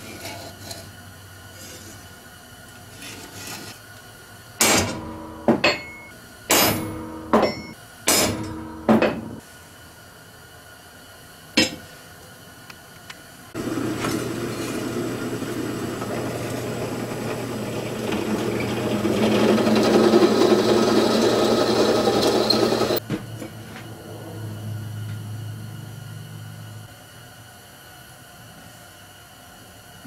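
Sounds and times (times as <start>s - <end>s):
drill bit cutting steel: 13.6s - 23.0s
drill press humming: 13.6s - 23.0s.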